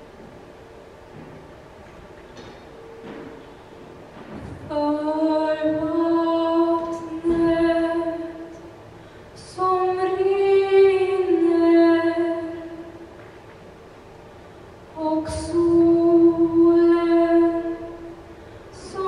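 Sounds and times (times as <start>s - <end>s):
woman singing unaccompanied: 4.6s - 8.6s, 9.4s - 13.0s, 15.0s - 18.2s, 18.8s - 19.0s.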